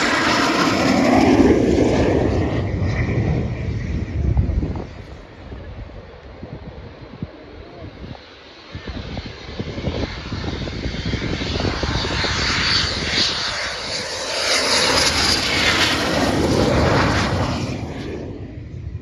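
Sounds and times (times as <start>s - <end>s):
jet passing low: 0.0s - 19.0s.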